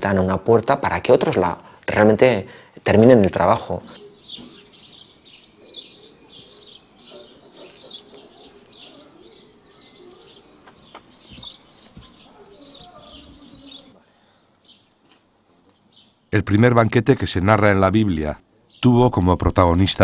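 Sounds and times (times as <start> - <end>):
songbirds chirping: 0.0 - 20.0
faint background murmur: 5.4 - 14.6.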